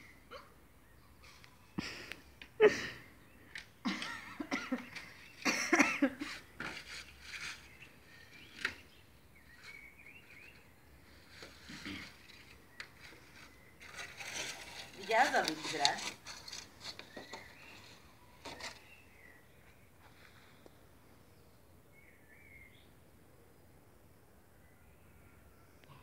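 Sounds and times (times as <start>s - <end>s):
plastic packet crinkling: 13.8s - 17.4s.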